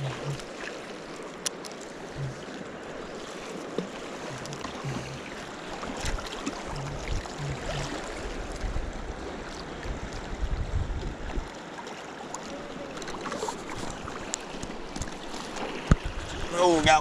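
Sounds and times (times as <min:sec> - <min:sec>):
river current rushing: 0:00.0 - 0:10.2, 0:11.6 - 0:17.0
wind buffeting microphone: 0:06.8 - 0:11.5.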